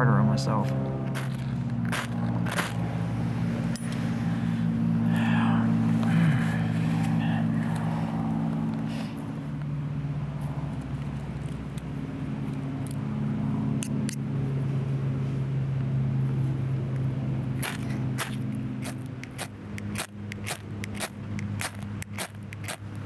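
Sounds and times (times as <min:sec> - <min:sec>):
low engine-like hum: 0:00.0 - 0:23.0.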